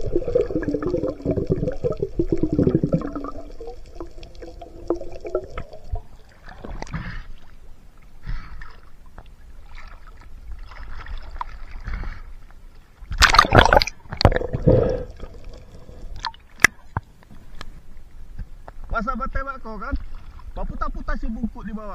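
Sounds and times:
faint bubbling: 0.0s - 12.2s, 13.2s - 17.0s
water splashing and sloshing: 0.0s - 19.0s, 19.7s - 21.1s
underwater water noise: 0.0s - 21.5s.

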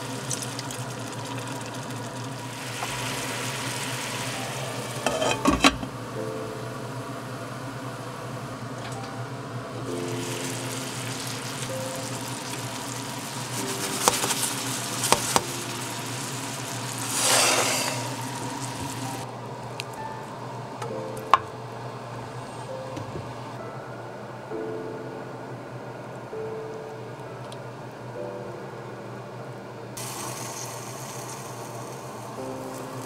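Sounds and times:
food sizzling in oil: 0.0s - 5.9s, 9.9s - 19.2s, 30.0s - 33.0s.

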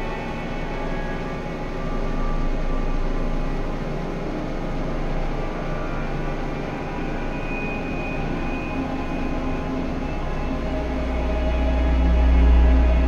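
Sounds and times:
electronic drone: 0.0s - 13.0s
low hum: 0.0s - 13.0s.

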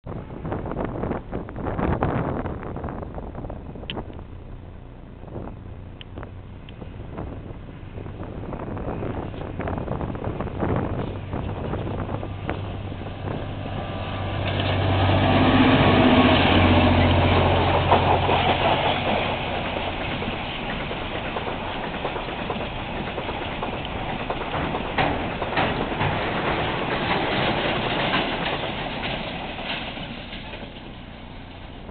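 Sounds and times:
diesel locomotive engines: 0.1s - 31.9s
wheels clicking over rail joints: 8.6s - 31.9s.

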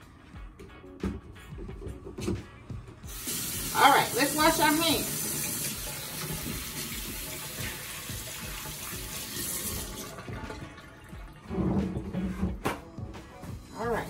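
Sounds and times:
faucet running into metal sink: 3.1s - 11.5s.

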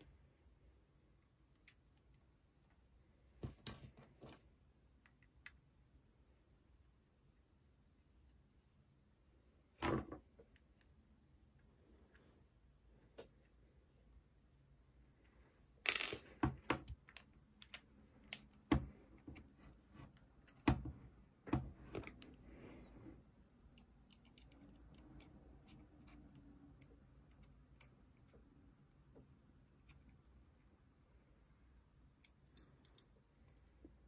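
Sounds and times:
small metal parts clinking: 15.8s - 16.4s.

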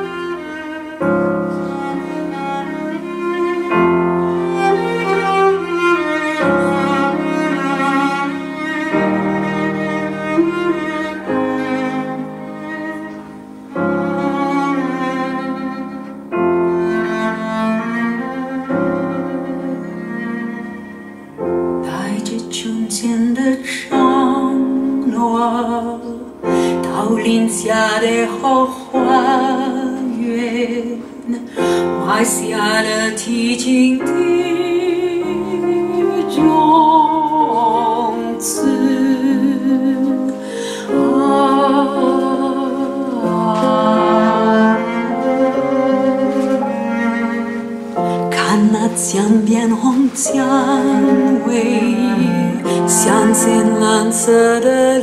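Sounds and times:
cello playing: 0.0s - 55.0s
piano: 0.0s - 55.0s
person singing: 21.8s - 46.9s, 48.0s - 55.0s.

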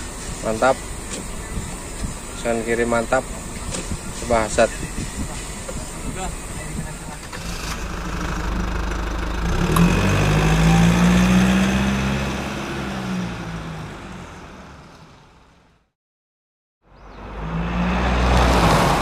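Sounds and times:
engine revving: 7.2s - 15.0s, 17.1s - 19.0s.

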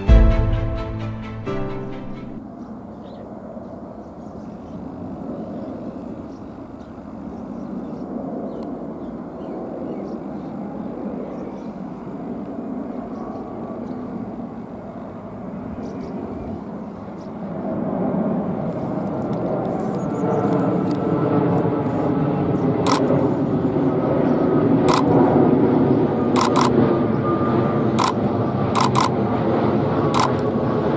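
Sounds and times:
jet engines rushing with whine: 2.1s - 30.9s
camera shutter clicks: 22.9s - 23.1s, 24.9s - 25.1s, 26.4s - 26.8s, 28.8s - 29.1s, 30.2s - 30.4s.

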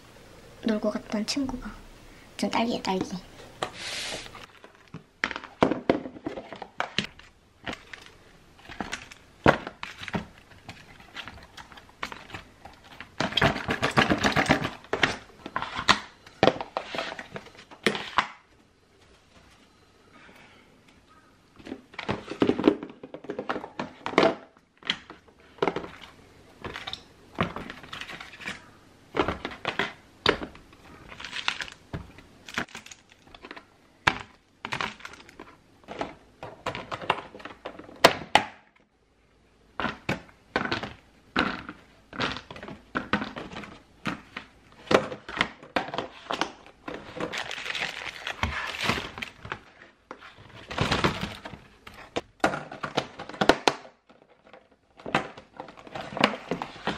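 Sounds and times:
thin plastic crackling: 41.4s - 52.2s.

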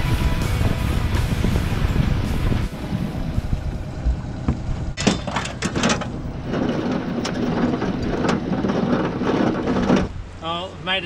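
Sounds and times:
motor hum: 1.4s - 10.2s
gear knocking on boat deck: 4.0s - 10.2s.

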